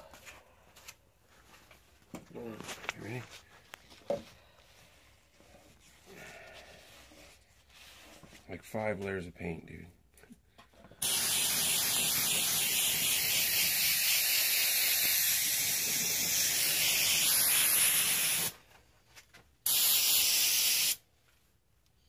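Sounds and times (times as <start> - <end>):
aerosol can spraying hiss: 11.0 - 18.6, 19.6 - 21.0.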